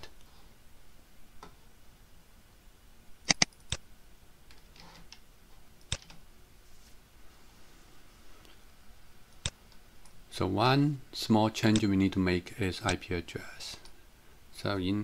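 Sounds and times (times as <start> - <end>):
mouse and keyboard clicks: 3.3 - 3.8, 5.8 - 6.2.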